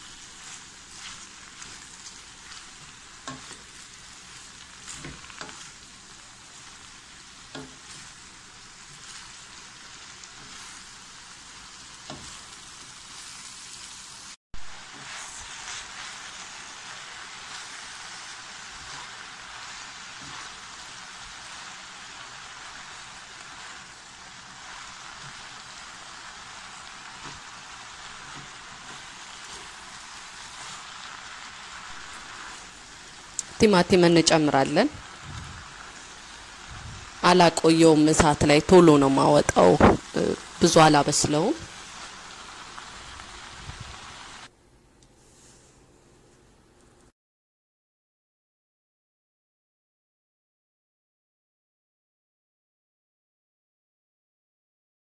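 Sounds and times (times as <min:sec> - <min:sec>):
wooden spoon scraping a pan: 0:00.0 - 0:05.8, 0:12.0 - 0:13.4, 0:14.8 - 0:16.6, 0:27.0 - 0:33.7
vegetables sizzling in a hot pan: 0:00.0 - 0:44.5.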